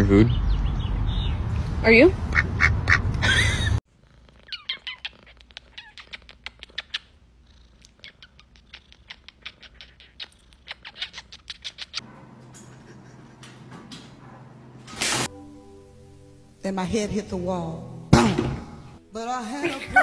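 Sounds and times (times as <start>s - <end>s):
cat calling: 4.4s - 7.1s, 7.8s - 12.0s
kissing smacks: 4.5s - 7.1s, 7.8s - 12.0s.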